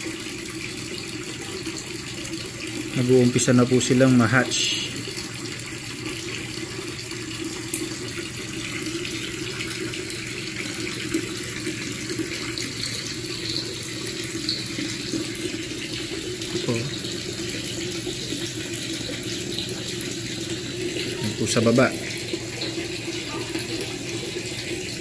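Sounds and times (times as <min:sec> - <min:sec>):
running water: 0:00.0 - 0:25.0.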